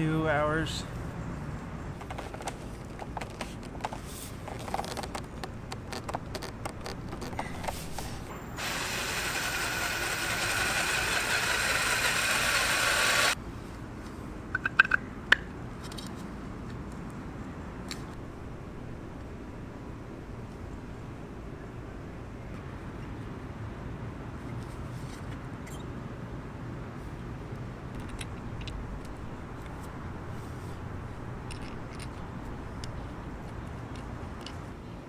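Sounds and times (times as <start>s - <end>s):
cordless drill boring plastic: 8.6s - 13.4s.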